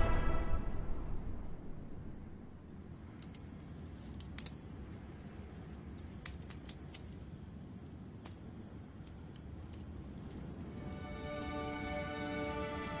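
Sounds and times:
wood fire rumbling: 1.6 - 13.0
logs popping and crackling: 2.8 - 13.0.

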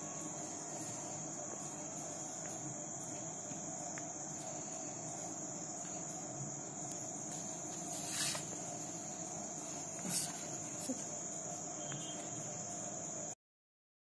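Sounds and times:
cricket trilling: 0.0 - 13.4.

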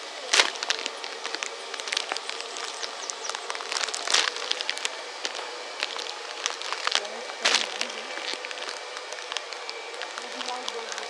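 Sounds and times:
steady hiss: 0.0 - 11.0
rustling and crackling handling noise: 0.2 - 11.0.

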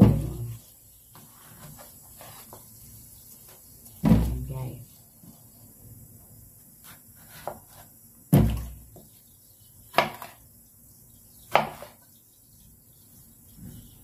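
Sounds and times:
knife chopping on cutting board: 6.8 - 8.8, 9.9 - 10.4, 11.5 - 12.0.

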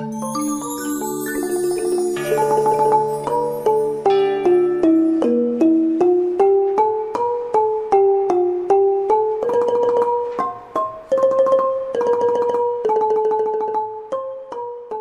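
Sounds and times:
piano-like keyboard melody: 0.0 - 7.3
glittering accompaniment: 0.0 - 10.0.

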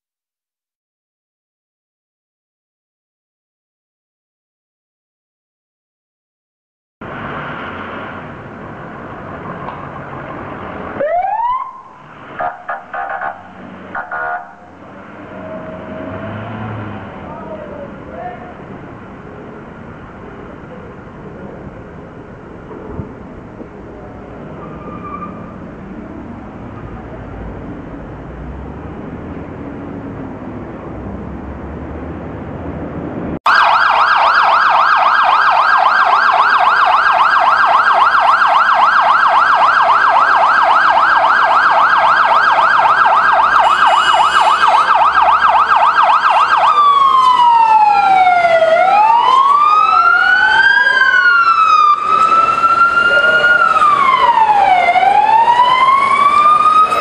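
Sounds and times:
traffic and engine rumble: 7.0 - 57.0
fire engine siren: 7.1 - 18.9, 33.5 - 57.0
second siren wailing: 10.9 - 17.4, 33.5 - 57.0.

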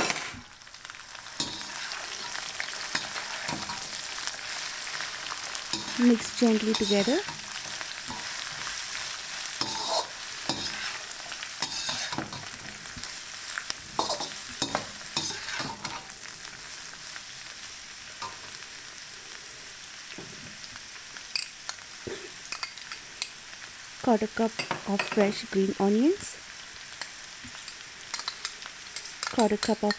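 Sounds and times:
vegetables sizzling in oil: 0.0 - 29.9
utensil scraping and knocking pan: 9.6 - 12.5.

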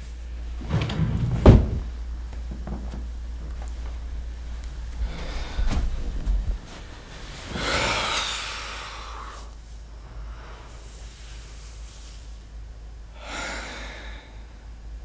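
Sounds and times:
man breathing out heavily: 5.0 - 6.1, 7.4 - 9.5, 13.2 - 14.7.

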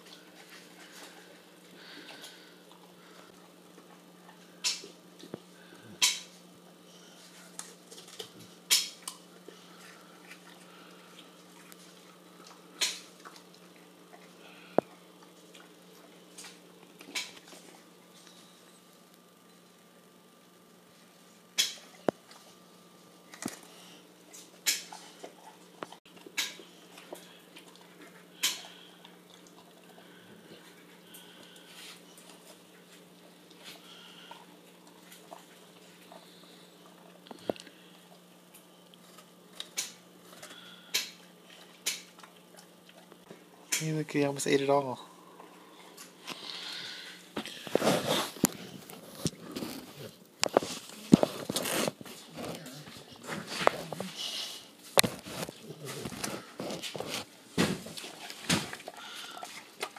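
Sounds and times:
dog crunching an apple: 0.0 - 18.3, 21.6 - 43.9, 45.4 - 59.9
dog crunching apple: 7.3 - 18.0, 47.4 - 54.1, 54.9 - 59.9
dog chewing: 23.2 - 39.8, 41.2 - 43.7.

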